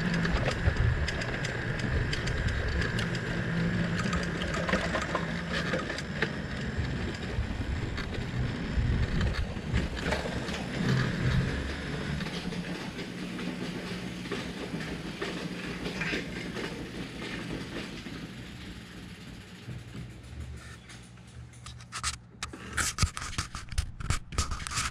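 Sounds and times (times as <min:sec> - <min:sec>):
wind buffeting microphone: 0:00.0 - 0:04.7, 0:06.4 - 0:13.1
scattered clicks: 0:00.0 - 0:08.2, 0:19.8 - 0:24.9
tyres rumbling on pavement: 0:00.0 - 0:20.6.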